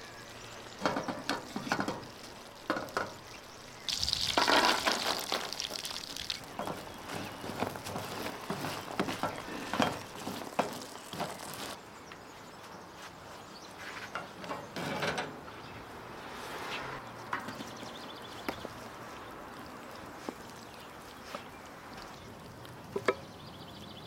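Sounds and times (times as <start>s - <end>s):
walnuts sizzling in oil: 0.6s - 11.8s.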